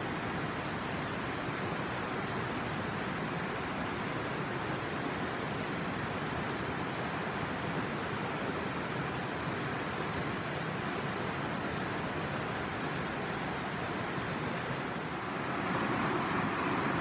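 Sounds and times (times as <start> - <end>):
water rushing over rocky cascades: 1.7 - 17.0.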